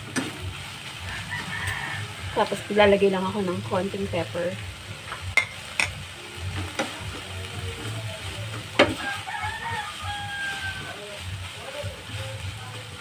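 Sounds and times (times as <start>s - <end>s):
food sizzling in frying pan: 0.0s - 13.0s
spatula knocking on pan: 8.8s - 9.1s.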